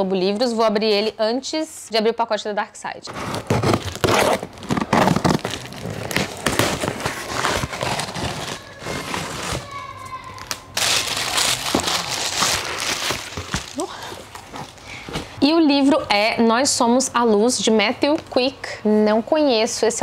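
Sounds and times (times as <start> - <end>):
cardboard and paper rustling: 3.1 - 15.3
scissors cutting packing tape: 3.2 - 9.6.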